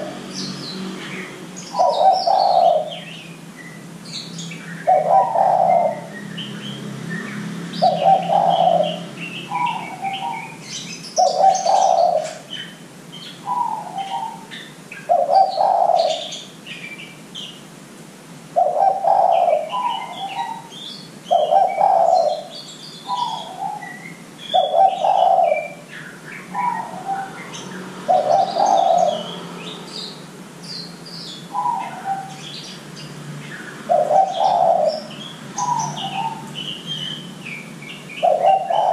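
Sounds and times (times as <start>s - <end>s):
dove cooing: 0.0s - 3.2s, 4.8s - 6.2s, 7.8s - 12.8s, 13.4s - 16.4s, 18.6s - 29.6s, 31.5s - 32.6s, 33.8s - 37.2s, 38.2s - 38.9s
small birds chirping: 0.0s - 17.8s, 18.5s - 38.9s.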